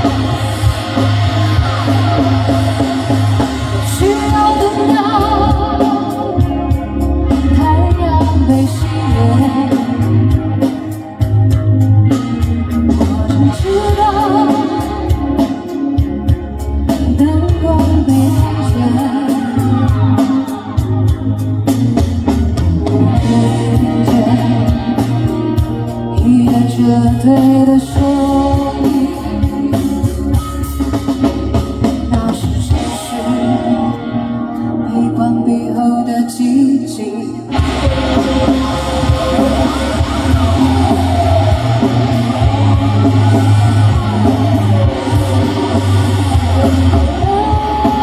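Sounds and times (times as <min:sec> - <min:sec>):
rock band playing: 0:00.0 - 0:48.0
woman singing: 0:03.8 - 0:10.4, 0:13.3 - 0:15.4, 0:17.0 - 0:20.8, 0:23.0 - 0:25.4, 0:26.1 - 0:30.0, 0:32.0 - 0:37.6, 0:47.1 - 0:48.0.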